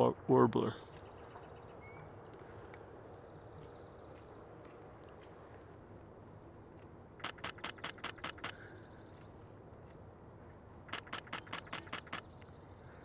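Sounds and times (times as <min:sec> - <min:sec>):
camera shutter clicks: 0:07.2 - 0:08.6, 0:10.9 - 0:12.4.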